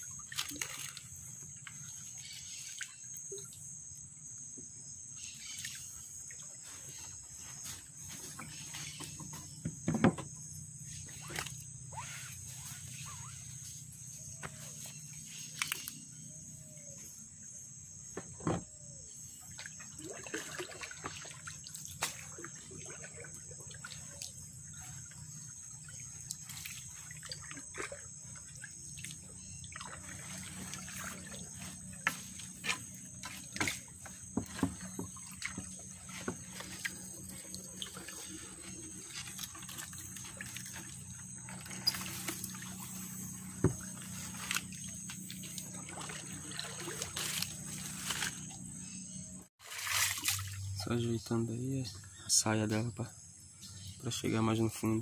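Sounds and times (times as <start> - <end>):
water trickling and splashing: 0.0 - 4.2, 5.2 - 17.0, 18.9 - 48.8, 49.4 - 51.9
net knocking against boat: 9.0 - 10.4, 33.5 - 36.8.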